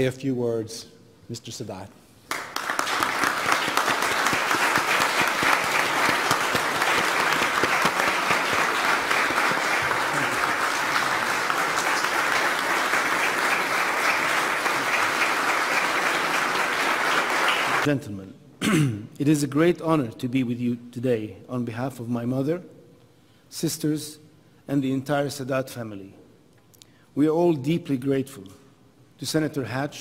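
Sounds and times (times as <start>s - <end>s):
audience applauding: 2.3s - 17.9s.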